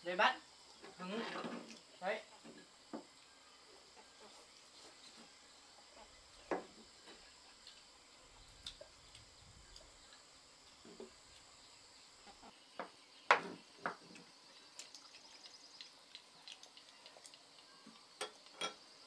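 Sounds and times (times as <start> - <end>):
insects chirring: 0.0 - 19.0
bowls and utensils clinking: 18.2 - 18.8.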